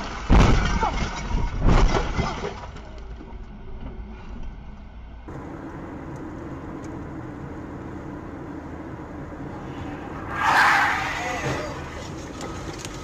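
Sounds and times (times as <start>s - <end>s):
car crash impact: 0.0s - 2.8s
road and engine noise inside car: 3.0s - 13.0s.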